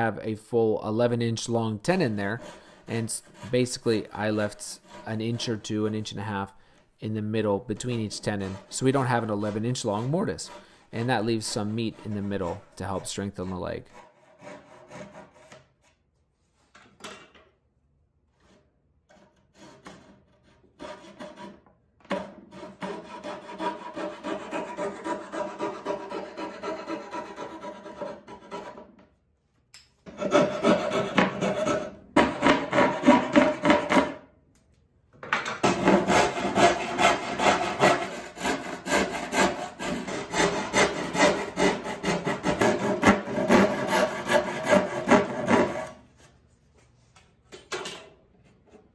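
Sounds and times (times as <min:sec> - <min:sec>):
hand saw cutting wood: 0:02.0 - 0:06.2, 0:07.8 - 0:15.9, 0:18.4 - 0:28.9, 0:30.1 - 0:34.2, 0:35.6 - 0:46.0
coping saw cutting: 0:07.9 - 0:15.3, 0:22.5 - 0:28.8, 0:35.6 - 0:46.0.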